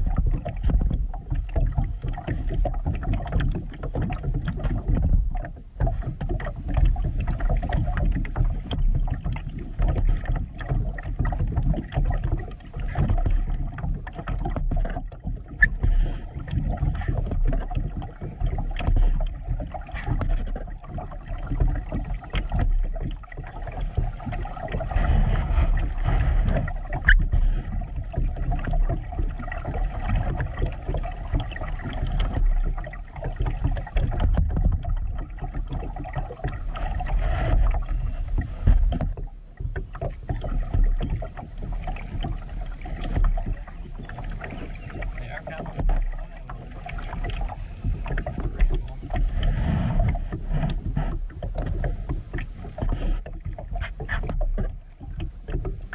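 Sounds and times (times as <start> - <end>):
small splashes: 0.0 - 55.9
water slapping against kayak hull: 0.0 - 55.9
low rumble: 20.7 - 53.2.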